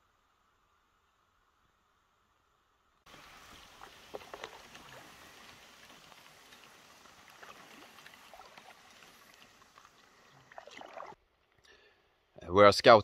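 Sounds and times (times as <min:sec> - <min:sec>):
faint water wash: 0:03.1 - 0:11.2
paddle splashes and drips: 0:03.1 - 0:11.2.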